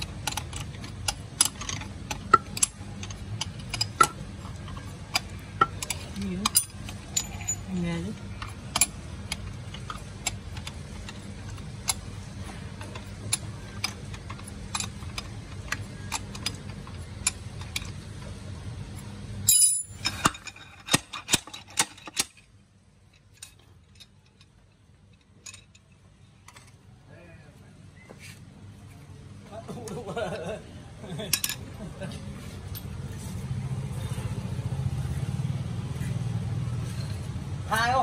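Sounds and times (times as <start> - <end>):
metallic clinks of bearing puller: 0.0 - 18.0, 19.5 - 22.4
metal clatter: 0.0 - 18.3, 19.4 - 22.5.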